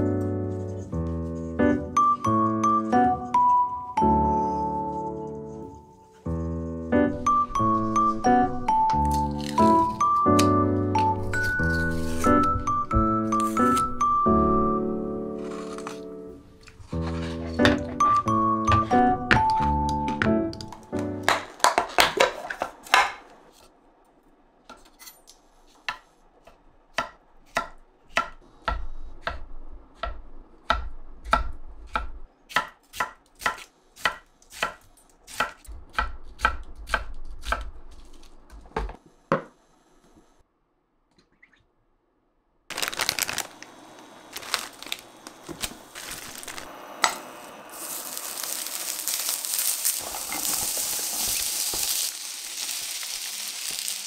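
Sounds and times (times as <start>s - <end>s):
knife chopping on cutting board: 30.0s - 37.7s
food sizzling in frying pan: 46.0s - 54.0s.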